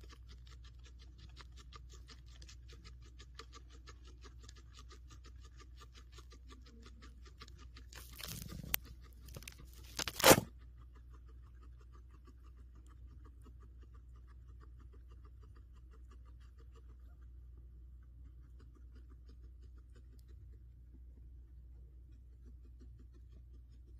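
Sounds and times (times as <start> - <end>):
guinea pig chewing: 0.0 - 23.9
loud rustling crunch: 7.9 - 10.5.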